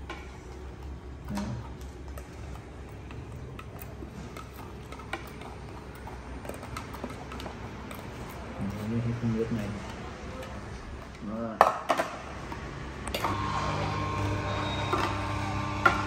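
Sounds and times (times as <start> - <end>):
juicer motor humming: 12.3 - 16.0
carrot crackling in juicer: 12.5 - 16.0.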